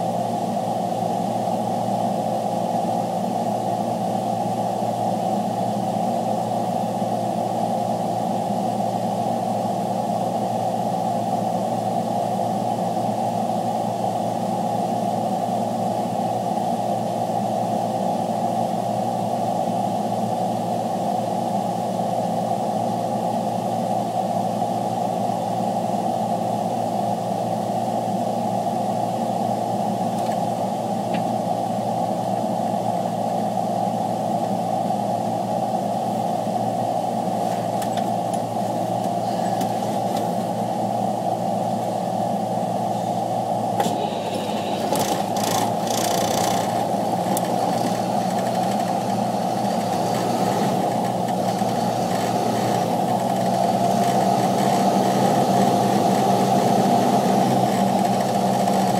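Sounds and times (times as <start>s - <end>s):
truck engine running: 27.3s - 58.9s.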